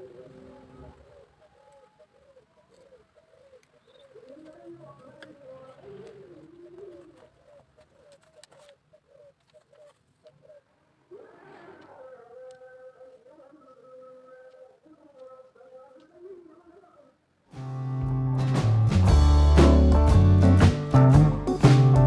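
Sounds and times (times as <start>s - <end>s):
dove cooing: 0.0s - 16.5s.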